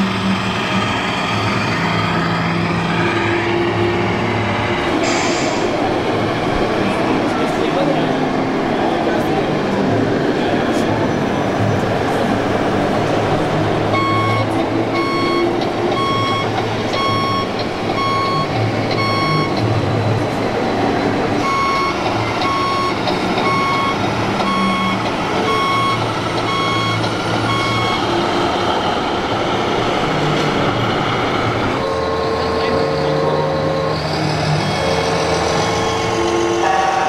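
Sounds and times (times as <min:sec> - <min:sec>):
steady background noise: 0:00.0 - 0:37.0
reversing beeper beeping: 0:14.0 - 0:19.6, 0:21.4 - 0:28.1.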